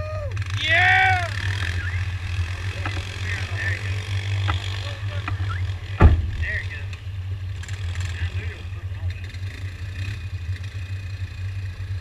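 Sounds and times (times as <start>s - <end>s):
person shouting: 0.0s - 1.4s
vehicle engines idling: 0.0s - 12.0s.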